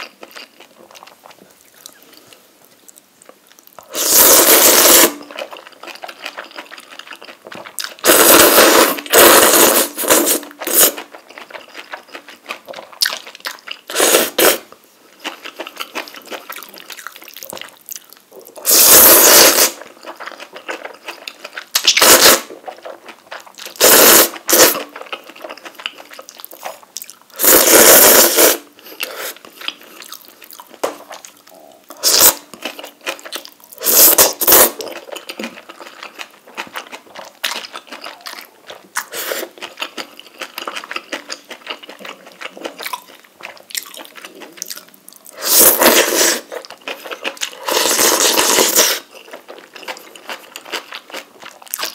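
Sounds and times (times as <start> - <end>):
quiet chewing: 0.0 - 3.9, 24.5 - 27.4, 28.8 - 51.9
loud noodle slurping: 3.9 - 5.2, 8.0 - 11.1, 13.9 - 14.7, 18.6 - 19.9, 21.8 - 22.6, 23.8 - 25.0, 27.4 - 29.4, 32.0 - 32.4, 33.8 - 35.0, 45.3 - 46.6, 47.5 - 49.1.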